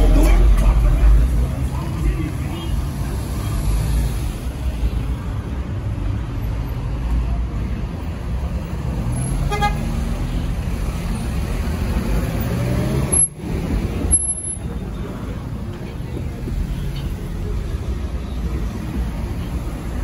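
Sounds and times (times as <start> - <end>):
road traffic rumble: 0.0 - 20.0
car horn toot: 9.5 - 9.8.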